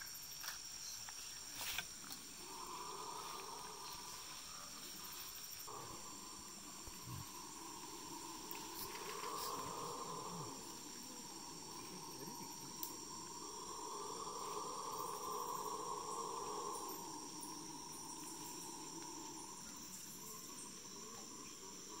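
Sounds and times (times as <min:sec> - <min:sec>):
insects trilling: 0:00.0 - 0:22.0
low insect drone: 0:00.0 - 0:22.0.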